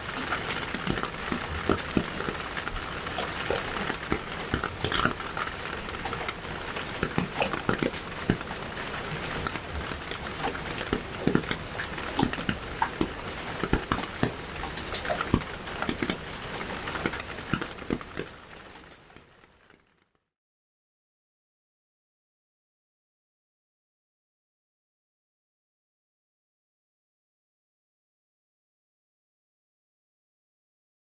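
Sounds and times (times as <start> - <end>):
steady hiss: 0.0 - 19.2
soft clicks and patters: 0.0 - 20.1.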